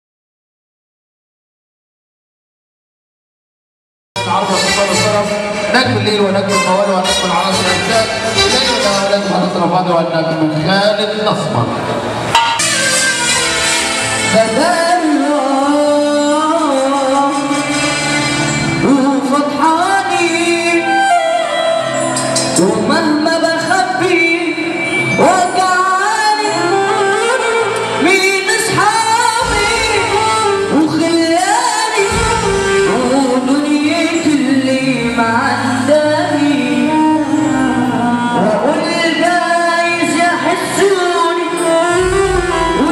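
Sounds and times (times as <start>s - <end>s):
backing music: 4.2s - 42.9s
boy singing through microphone: 14.2s - 42.9s.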